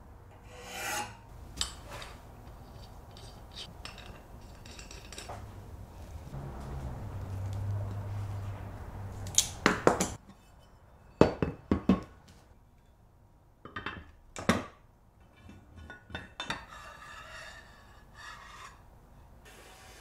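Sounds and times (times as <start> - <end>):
metal parts clinking on workbench: 3.1 - 5.4
low hum: 6.2 - 9.4.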